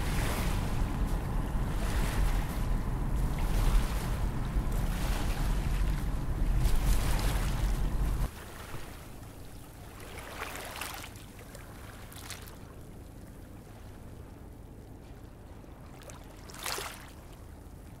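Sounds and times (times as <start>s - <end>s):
low ambient rumble: 0.0s - 8.4s.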